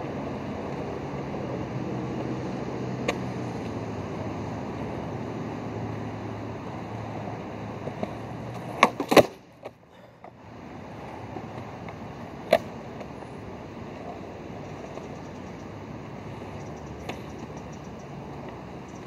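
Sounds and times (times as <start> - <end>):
skateboard wheels rolling on concrete: 0.0 - 19.0
skateboard tail clacks: 3.0 - 3.8, 7.8 - 10.4, 11.3 - 13.2, 16.6 - 19.0.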